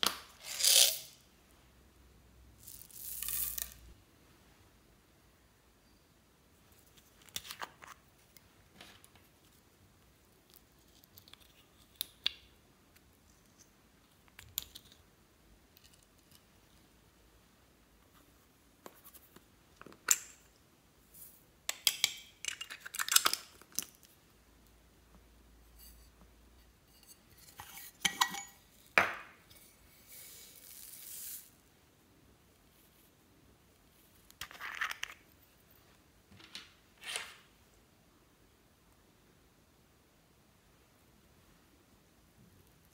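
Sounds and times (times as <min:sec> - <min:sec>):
beads pouring into glass dish: 0:02.6 - 0:03.9, 0:30.0 - 0:31.6.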